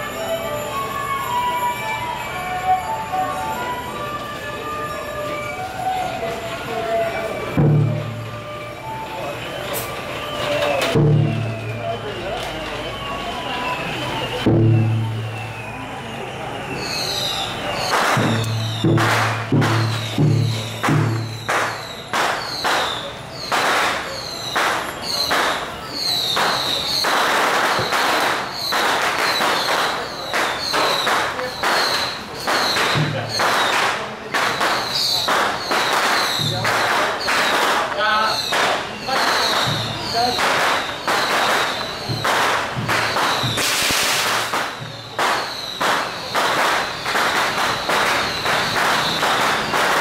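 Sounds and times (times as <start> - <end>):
firecrackers crackling: 0.0 - 50.0
cymbal crashes in march beat: 17.9 - 22.5.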